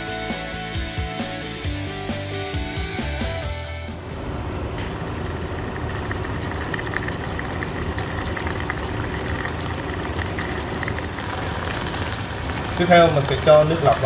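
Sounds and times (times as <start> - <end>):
fish sizzling in a frying pan: 10.6 - 14.0.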